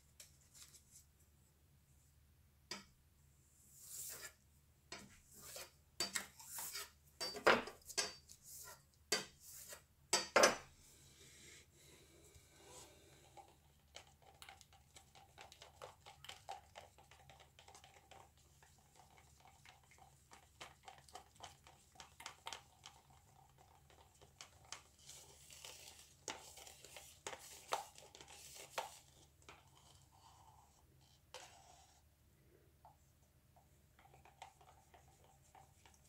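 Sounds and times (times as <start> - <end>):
painting supplies clicking and crinkling: 13.4 - 30.0, 33.6 - 36.0.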